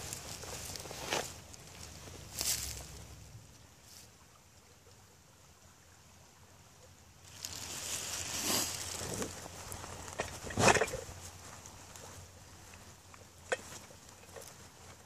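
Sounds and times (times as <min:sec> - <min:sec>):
dry leaves rustling and crunching: 0:00.0 - 0:03.2, 0:07.2 - 0:15.0
faint outdoor background: 0:00.0 - 0:15.0.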